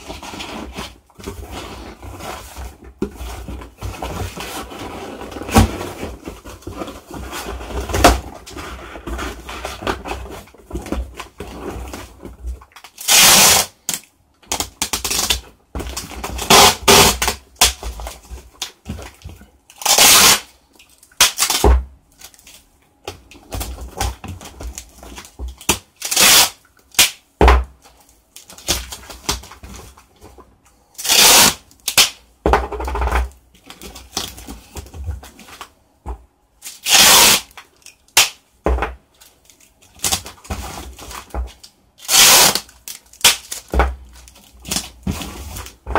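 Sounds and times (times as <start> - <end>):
tape rustling on cardboard: 0.0 - 27.2, 27.8 - 32.2, 36.6 - 38.4, 39.1 - 45.9
packing tape pulled off roll: 12.8 - 15.4, 16.0 - 17.8, 19.7 - 20.6, 21.2 - 22.6, 25.6 - 27.2, 31.0 - 32.2, 36.6 - 38.4, 42.0 - 45.8.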